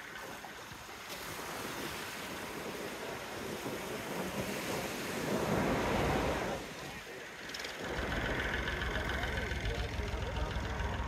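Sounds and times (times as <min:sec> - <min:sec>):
sea surf washing on beach: 0:00.0 - 0:11.0.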